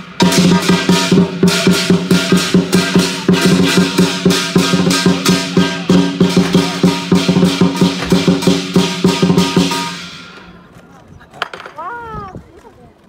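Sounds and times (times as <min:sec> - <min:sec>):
large drum beating: 0:00.0 - 0:10.4
gong and cymbals striking: 0:00.0 - 0:10.5.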